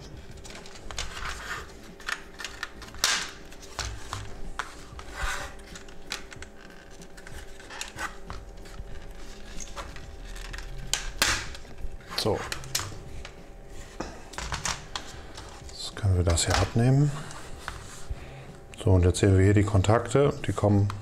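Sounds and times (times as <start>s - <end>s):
plastic clicking and rubbing: 0.0s - 13.4s.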